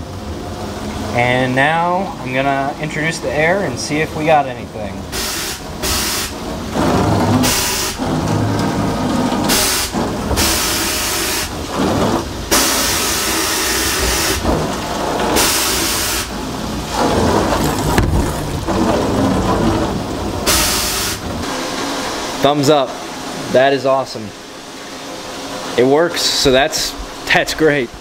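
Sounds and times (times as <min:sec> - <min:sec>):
wet splashing of slurry: 0:03.9 - 0:23.5
loud hissing air blasts: 0:05.1 - 0:17.5, 0:20.0 - 0:27.0.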